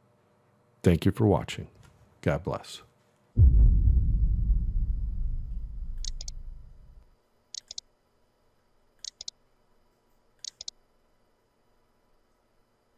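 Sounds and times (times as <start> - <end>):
deep low rumble: 3.4 - 7.0
computer mouse double clicks: 6.0 - 6.4, 7.6 - 7.8, 9.0 - 9.3, 10.4 - 10.8.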